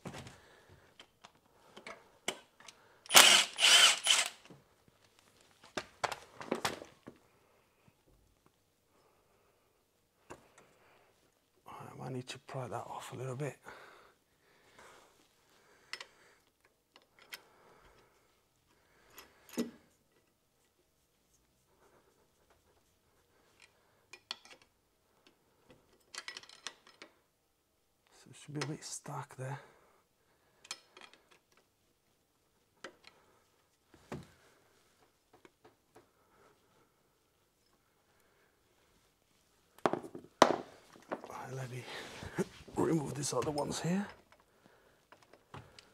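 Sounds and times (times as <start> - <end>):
faint handling noise: 4.4 - 7.3.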